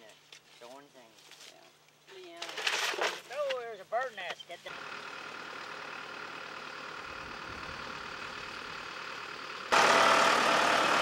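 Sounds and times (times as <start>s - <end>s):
tractor engine running: 4.7s - 11.0s.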